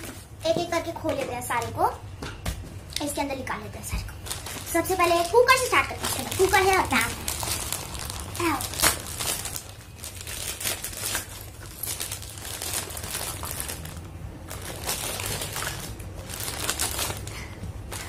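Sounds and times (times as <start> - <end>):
packaging crinkling and rustling: 4.0 - 18.0.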